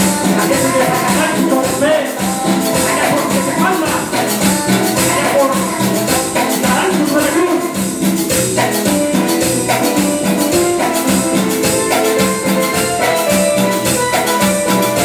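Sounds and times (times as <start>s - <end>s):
drums: 0.0s - 15.0s
electric bass: 0.0s - 15.0s
keyboard melody: 0.0s - 15.0s
steady percussion beat: 0.0s - 15.0s.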